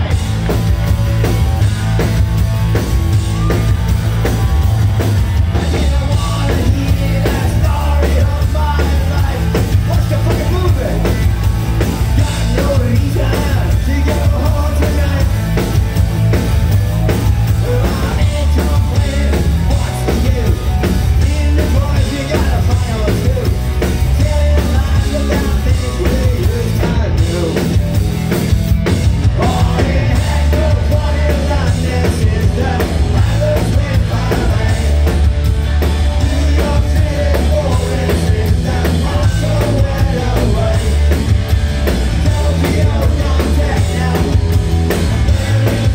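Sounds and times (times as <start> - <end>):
bass guitar: 0.0 - 45.9
drum kit: 0.0 - 45.9
electric guitars: 0.0 - 45.9
person singing: 29.2 - 35.1, 36.1 - 41.2, 42.1 - 45.9.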